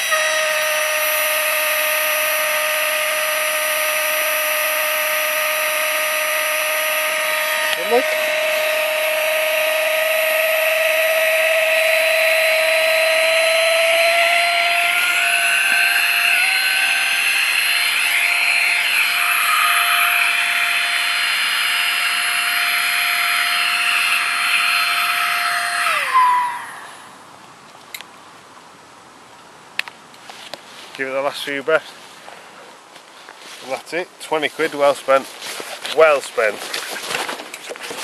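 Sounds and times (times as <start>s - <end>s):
electric air pump whining: 0.0s - 27.1s.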